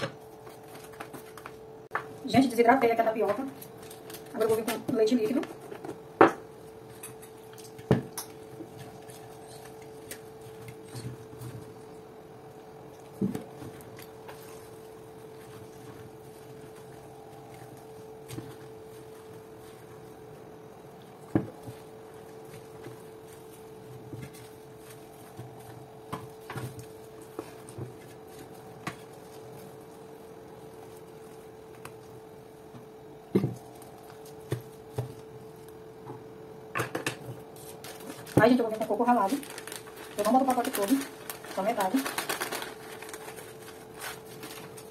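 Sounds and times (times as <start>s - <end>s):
faint steady hum: 0.0s - 44.9s
wooden spoon stirring: 13.3s - 32.2s.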